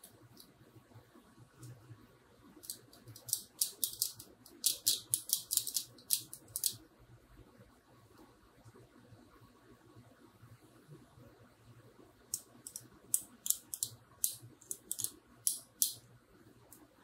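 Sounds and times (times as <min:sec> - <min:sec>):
metal tool clicking on circuit board: 0:12.3 - 0:16.0.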